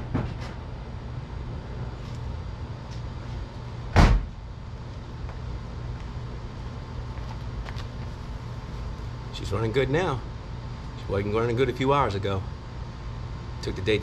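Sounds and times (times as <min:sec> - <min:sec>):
car door slamming: 0:03.9 - 0:04.3.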